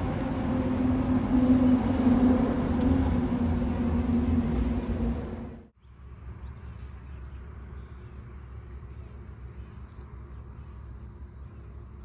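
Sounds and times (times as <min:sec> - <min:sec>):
lorry passing: 0:00.0 - 0:05.7.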